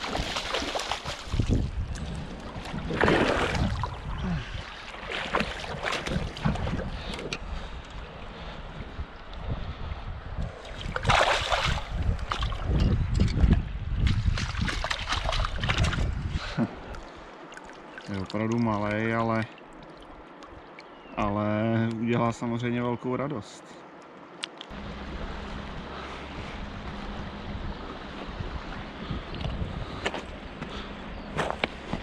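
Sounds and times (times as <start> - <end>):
river water running: 0.0 - 12.8, 13.7 - 32.0
wind buffeting microphone: 0.0 - 17.0, 24.7 - 32.0.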